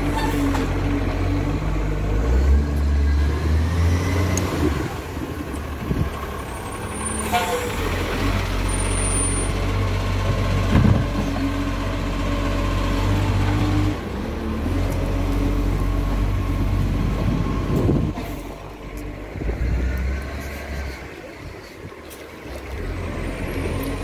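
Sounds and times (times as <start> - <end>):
garbage truck diesel engine: 0.0 - 24.0.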